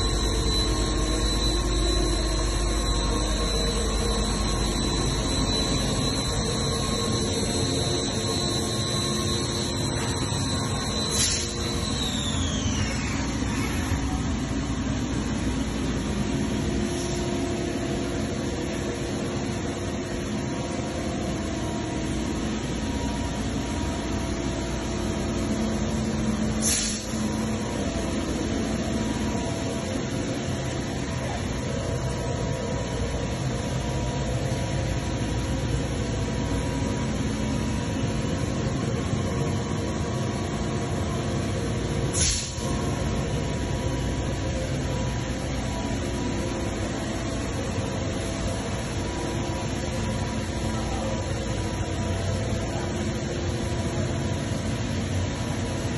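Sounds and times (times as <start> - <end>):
machinery hum with hiss: 0.0 - 55.9.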